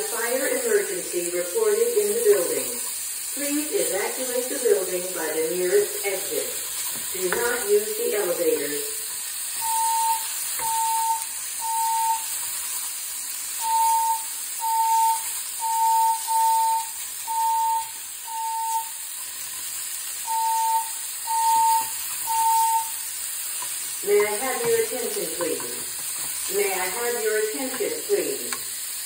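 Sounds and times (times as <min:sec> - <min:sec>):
sausage sizzling in frying pan: 0:00.0 - 0:29.0
fire alarm beeping: 0:07.2 - 0:12.4, 0:13.5 - 0:19.2, 0:20.1 - 0:25.9, 0:26.5 - 0:28.7.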